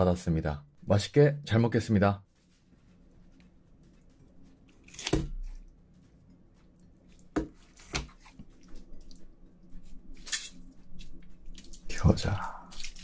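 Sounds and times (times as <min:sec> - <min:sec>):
broth dripping and splashing: 0:11.6 - 0:13.0.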